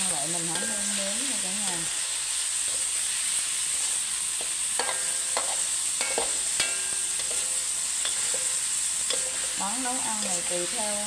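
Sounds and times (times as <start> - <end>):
meat sizzling in a wok: 0.0 - 11.0
spatula clinking on metal pan: 0.5 - 1.0, 4.8 - 10.5.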